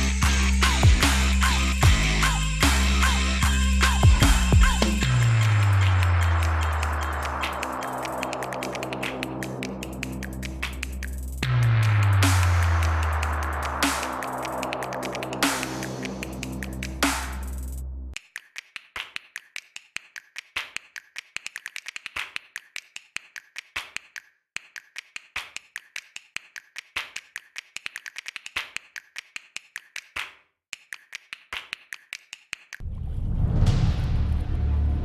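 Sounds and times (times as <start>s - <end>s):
rapid clicking ticks: 18.2s - 32.8s
deep low rumble: 32.8s - 35.0s.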